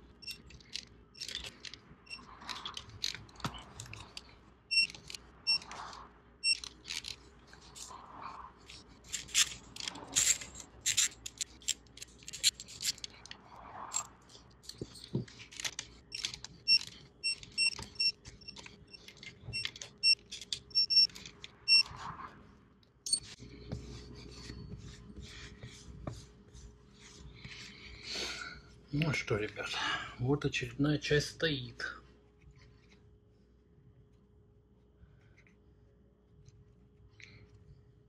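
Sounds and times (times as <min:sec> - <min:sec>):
metal tools clinking and scraping: 0:00.2 - 0:05.7, 0:08.7 - 0:21.9.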